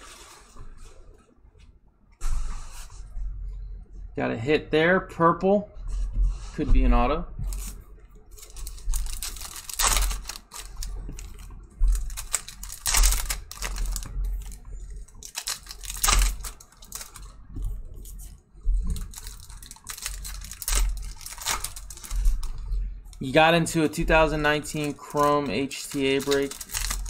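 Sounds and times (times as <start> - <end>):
foil packs crinkling and tearing: 7.5 - 27.0.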